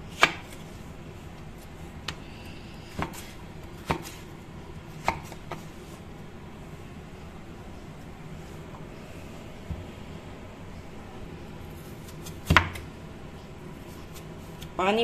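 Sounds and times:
knife cutting potato: 0:02.8 - 0:04.3.

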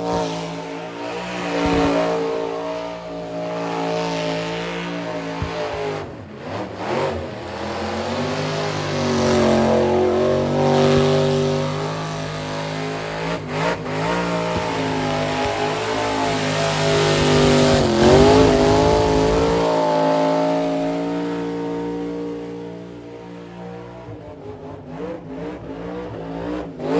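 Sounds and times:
car engine revving high: 0:00.0 - 0:26.9.

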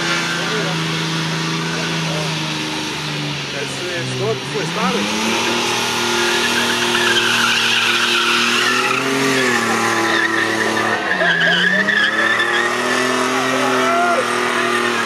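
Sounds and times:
car engine revving high: 0:00.0 - 0:15.0
tyres squealing: 0:04.0 - 0:15.0.

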